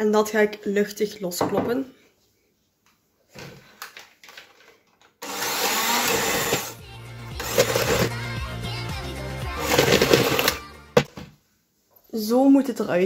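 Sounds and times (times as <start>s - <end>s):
electric mixer motor humming: 5.2s - 8.3s, 9.6s - 10.6s.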